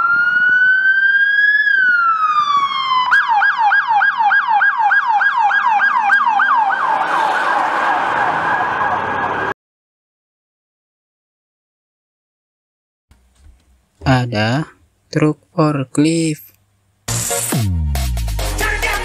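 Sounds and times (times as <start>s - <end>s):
police siren wailing and yelping: 0.0s - 9.6s.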